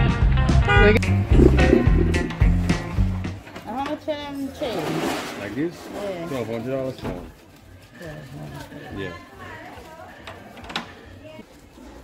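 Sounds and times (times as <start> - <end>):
music with deep bass line: 0.0 - 3.4.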